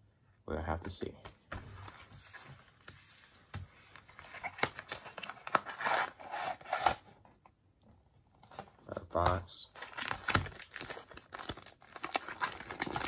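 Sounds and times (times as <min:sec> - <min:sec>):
paper packaging rustling and crinkling: 0:01.6 - 0:07.0, 0:09.7 - 0:13.0.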